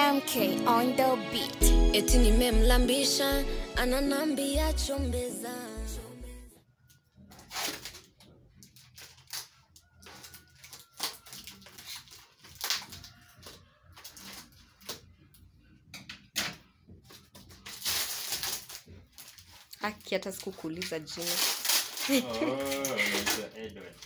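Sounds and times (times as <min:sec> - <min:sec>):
packaging crinkling and rustling: 0:07.3 - 0:15.0, 0:17.1 - 0:24.0
scissors snipping packaging: 0:07.4 - 0:13.4.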